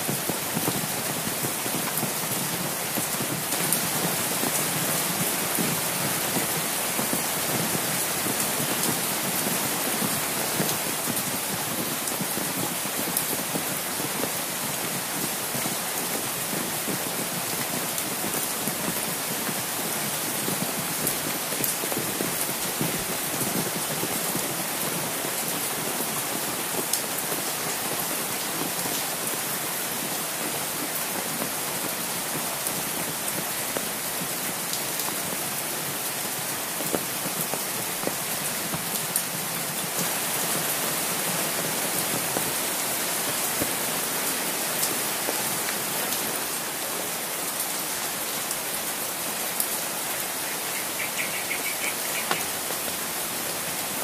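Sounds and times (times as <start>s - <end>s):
raindrops striking an umbrella: 0.0s - 54.0s
steady rain: 0.0s - 54.0s.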